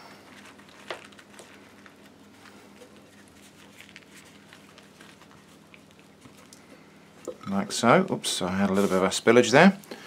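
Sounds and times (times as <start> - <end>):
tortilla rustling and tapping: 0.1 - 6.9.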